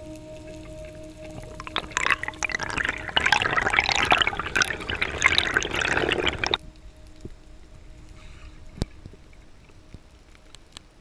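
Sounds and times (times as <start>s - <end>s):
water splashing and bubbling: 0.4s - 6.6s.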